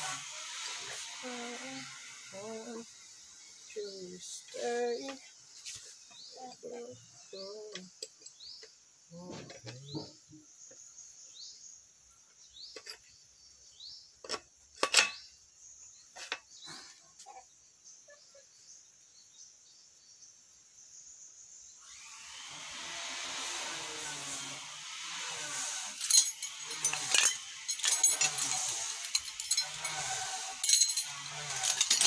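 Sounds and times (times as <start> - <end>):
spinning wheel whirring hiss: 0.0 - 5.1, 25.2 - 32.0.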